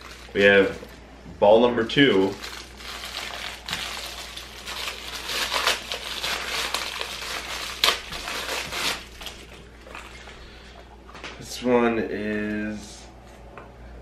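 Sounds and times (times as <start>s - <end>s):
plastic bag crinkling: 0.0s - 1.0s, 1.7s - 10.5s
sharp plastic crack: 2.3s - 9.5s.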